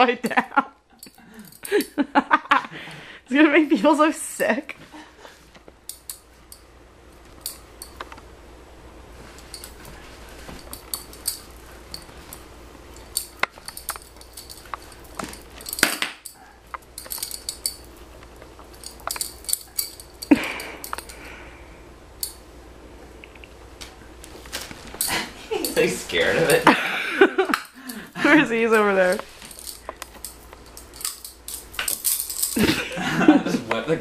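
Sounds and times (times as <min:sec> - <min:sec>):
beads and glass clinking: 0:09.3 - 0:21.2, 0:29.0 - 0:32.8.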